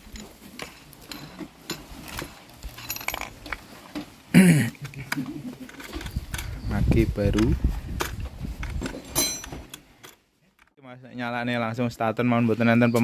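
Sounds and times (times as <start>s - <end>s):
metallic clicks and clinks: 0.0s - 3.6s, 5.6s - 10.7s.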